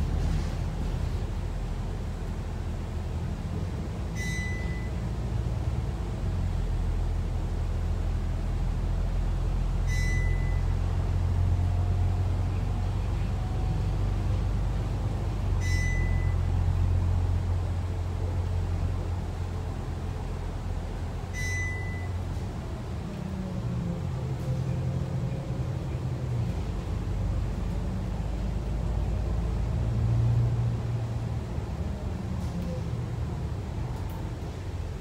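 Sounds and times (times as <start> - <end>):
bus diesel engine drone: 0.0 - 35.0
short high beep: 4.2 - 5.0, 9.9 - 10.7, 15.6 - 16.5, 21.3 - 22.2.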